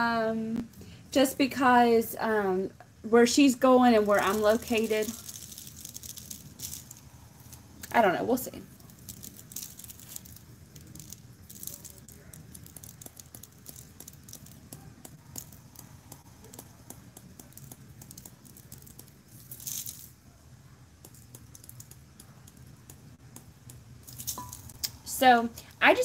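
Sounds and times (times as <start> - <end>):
faint low hum: 0.0 - 26.0
glitter rattling in plastic container: 3.8 - 20.2, 21.1 - 23.2, 24.0 - 25.0
hissy pour of glitter: 4.0 - 20.2.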